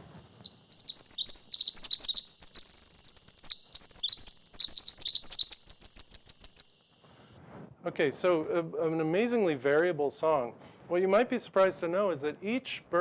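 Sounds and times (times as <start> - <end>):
bird song over loudspeakers: 0.0 - 6.8.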